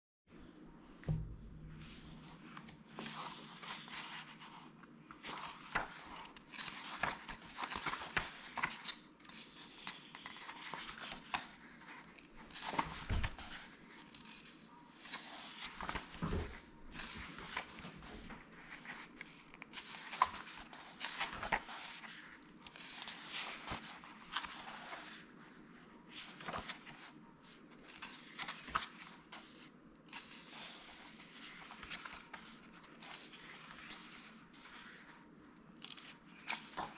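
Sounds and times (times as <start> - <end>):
soft thumps of book: 1.0 - 3.2, 15.7 - 18.8
book pages turning: 1.1 - 36.9.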